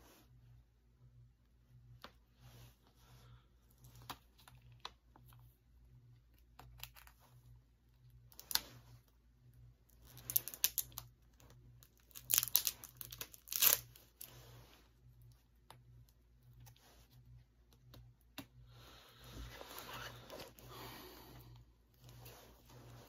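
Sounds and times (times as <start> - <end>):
shrink wrap crinkling and tearing: 8.3 - 8.8, 9.9 - 14.5.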